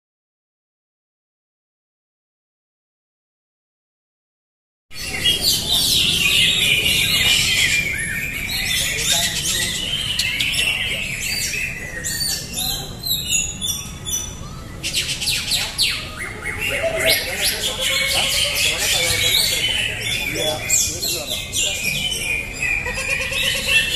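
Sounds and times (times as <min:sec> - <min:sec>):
many birds singing: 0:04.9 - 0:23.9.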